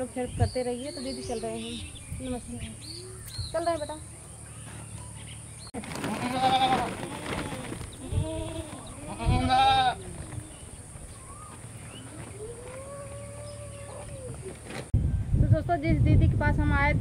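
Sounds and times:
goat bleating: 0:06.0 - 0:10.2.

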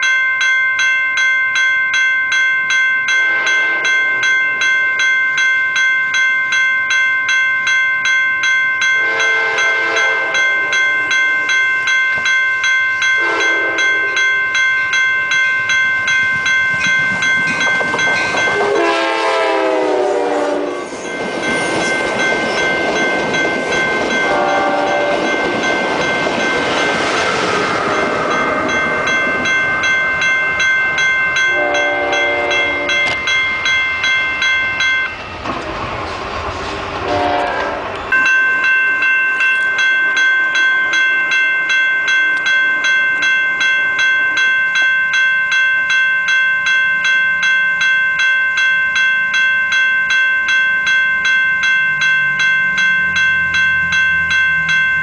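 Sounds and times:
crossing bell ringing: 0:00.0 - 0:55.0
passing train rumble: 0:01.5 - 0:55.0
diesel locomotive horn: 0:03.2 - 0:04.2, 0:09.0 - 0:10.8, 0:13.2 - 0:14.2, 0:18.6 - 0:21.0, 0:24.3 - 0:25.3, 0:31.5 - 0:33.2, 0:37.0 - 0:38.0.

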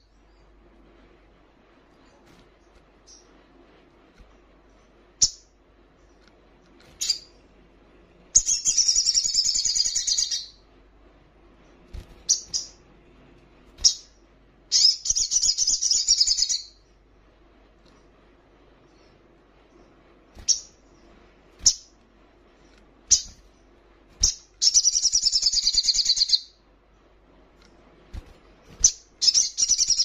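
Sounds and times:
bird chirping: 0:03.0 - 0:03.4, 0:04.7 - 0:06.2, 0:06.8 - 0:07.5, 0:08.3 - 0:10.6, 0:11.6 - 0:12.9, 0:13.8 - 0:16.8, 0:18.9 - 0:22.0, 0:22.6 - 0:26.6, 0:28.7 - 0:30.0
high trilled birdsong: 0:04.7 - 0:06.2, 0:07.0 - 0:07.5, 0:08.3 - 0:10.7, 0:11.6 - 0:12.9, 0:13.8 - 0:16.9, 0:20.4 - 0:22.0, 0:22.6 - 0:26.6, 0:28.8 - 0:30.0.

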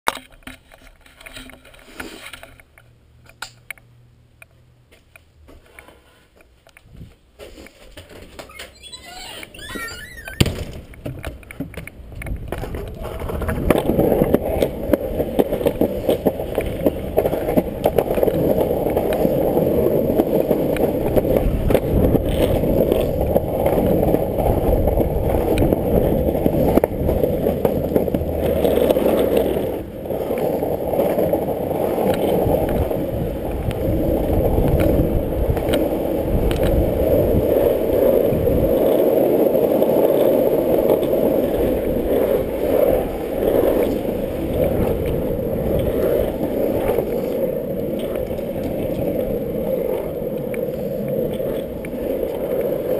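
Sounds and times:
high wavering squeak: 0:08.4 - 0:10.5
longboard wheels rumbling: 0:08.5 - 0:52.9.

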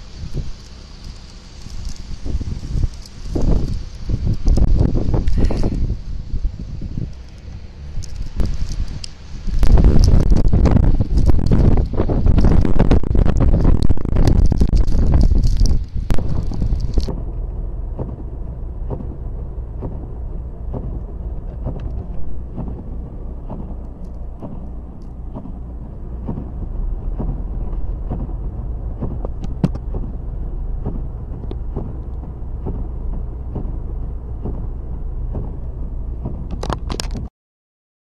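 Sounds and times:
car engine rumble: 0:00.0 - 0:37.3
tyres on snowy road: 0:00.0 - 0:37.3
light ticks: 0:00.3 - 0:05.8, 0:30.8 - 0:37.3.

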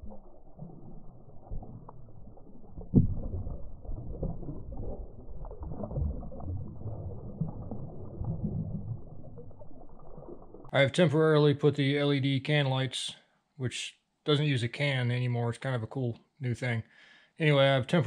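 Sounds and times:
ducks paddling and dabbling: 0:00.0 - 0:08.2
water sloshing and splashing: 0:00.0 - 0:10.7.

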